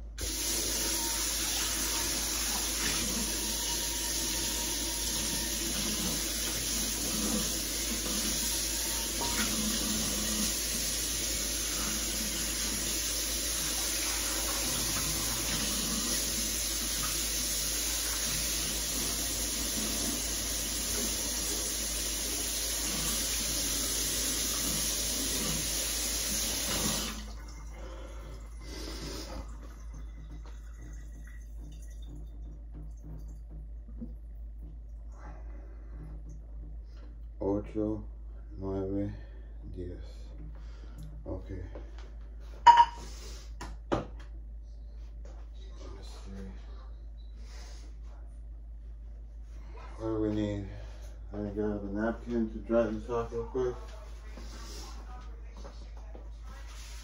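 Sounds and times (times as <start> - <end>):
frying pan being washed: 0.2 - 30.3
faucet running into sink: 0.2 - 34.2.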